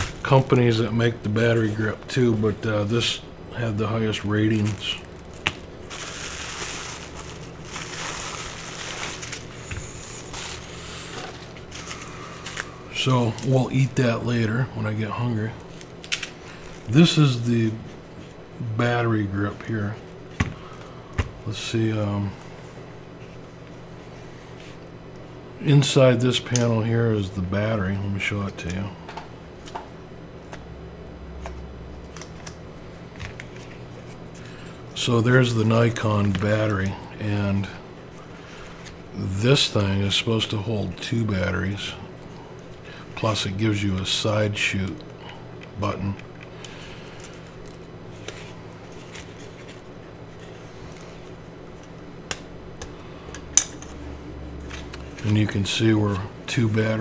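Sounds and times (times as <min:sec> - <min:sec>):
steady low hum: 0:00.0 - 0:57.0
bubble wrap crinkling: 0:04.3 - 0:13.6.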